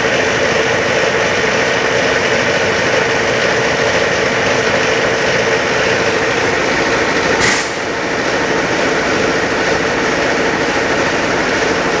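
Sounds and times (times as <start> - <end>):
machinery running with loud hum: 0.0 - 12.0
short burst of hiss: 7.4 - 7.8.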